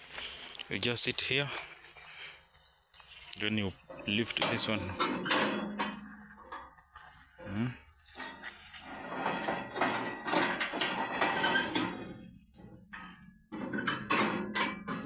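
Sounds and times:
metal clanks and rattles: 3.8s - 6.9s, 8.0s - 15.0s.

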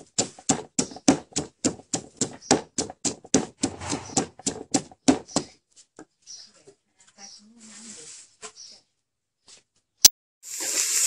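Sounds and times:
pestle pounding in mortar: 0.0s - 5.5s.

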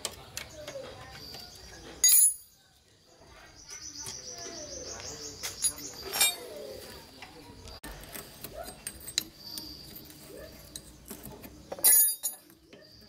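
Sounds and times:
tools clattering: 1.9s - 2.6s, 5.4s - 6.6s, 8.3s - 12.9s
hand tools tapping on metal: 5.4s - 6.6s, 7.2s - 12.9s.

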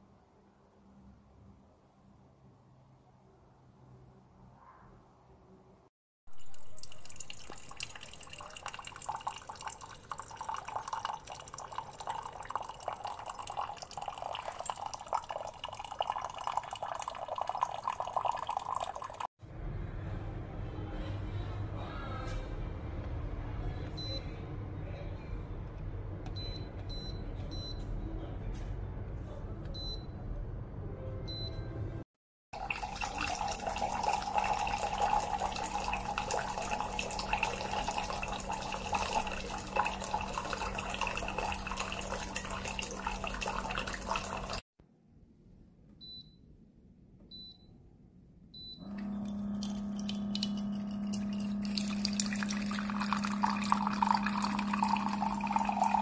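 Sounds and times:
hot water pouring into mug: 6.3s - 19.3s, 32.6s - 44.6s, 49.2s - 56.0s
water filling a glass: 6.3s - 19.3s, 32.6s - 44.6s, 48.9s - 56.0s.

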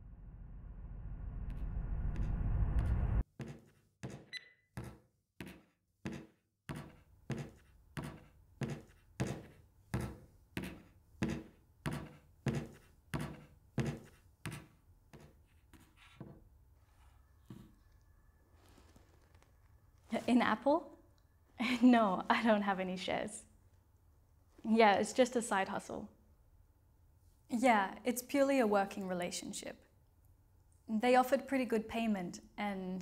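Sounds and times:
low rumbling swell: 0.0s - 3.2s.

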